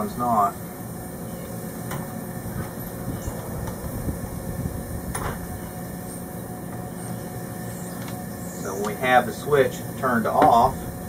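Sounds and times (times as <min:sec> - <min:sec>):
faint hum: 0:00.0 - 0:11.0
steady low rumble: 0:00.0 - 0:11.0.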